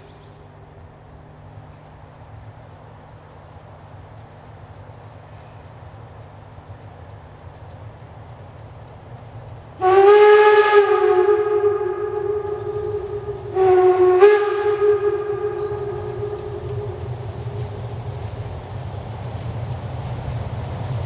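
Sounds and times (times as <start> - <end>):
train rumbling: 0.0 - 21.0
steam whistle blasts: 9.8 - 18.5.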